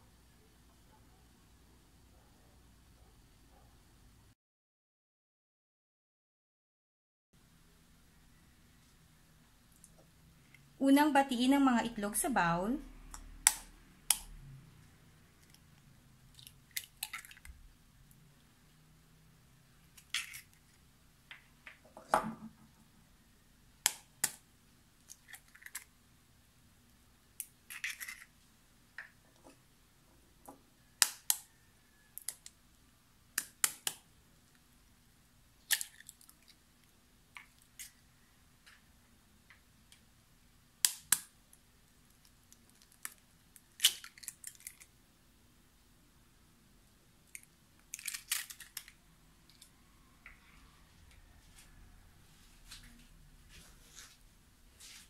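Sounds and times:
eggshells crackling open: 15.4 - 17.6, 19.9 - 20.8, 25.0 - 25.9, 27.4 - 28.4, 35.6 - 38.0, 42.0 - 45.0, 47.3 - 49.7.

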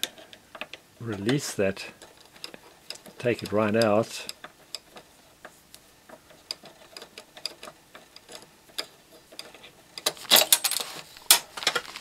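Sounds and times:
screwdriver clicking on metal: 0.0 - 10.8.

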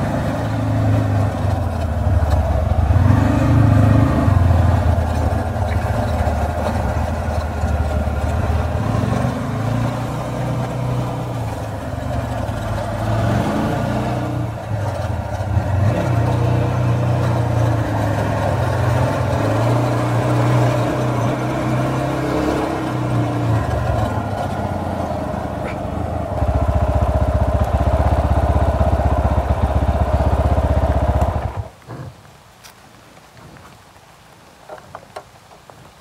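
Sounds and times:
motorcycle engine idling: 0.0 - 13.2, 23.5 - 31.7.

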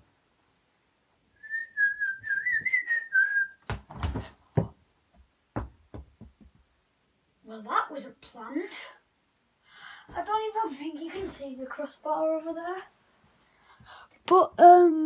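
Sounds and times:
person whistling a tune: 1.4 - 3.6
ball kicked and thudding: 3.6 - 4.8, 5.5 - 6.6
ball bouncing on floor: 3.6 - 6.6.

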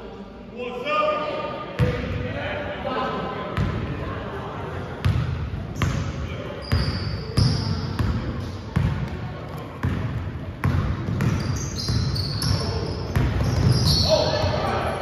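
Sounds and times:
basketball bouncing on court: 5.0 - 6.0, 6.6 - 14.6
sneakers squeaking on floor: 5.1 - 9.0, 9.8 - 15.0.

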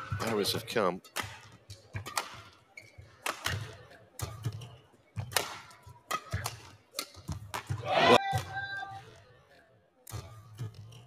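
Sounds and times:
rackets striking shuttlecock: 0.0 - 8.6.

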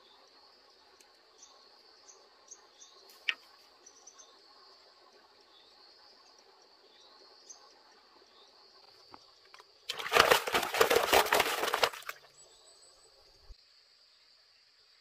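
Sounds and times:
faint insect drone: 0.0 - 9.9, 12.0 - 15.0.

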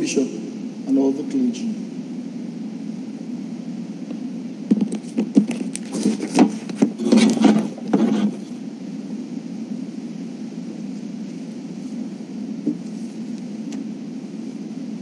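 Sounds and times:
low room hum: 0.0 - 15.0
paper rustling: 4.8 - 8.5.

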